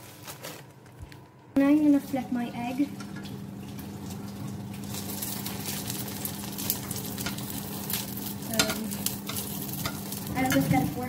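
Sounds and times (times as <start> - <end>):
egg sizzling in frying pan: 1.7 - 11.0
metal turner scraping pan: 4.8 - 11.0.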